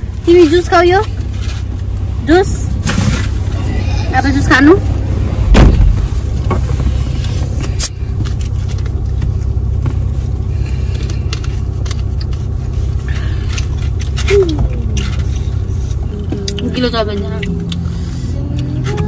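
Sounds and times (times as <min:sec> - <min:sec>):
car cabin engine rumble: 0:00.0 - 0:19.0
thump: 0:05.5 - 0:06.0.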